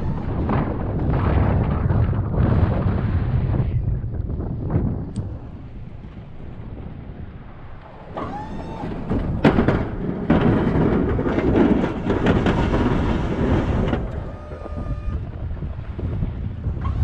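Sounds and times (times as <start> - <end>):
dense rushing noise: 0.0 - 17.0
truck engine rumble: 0.0 - 17.0
rising and falling whine: 5.0 - 9.4.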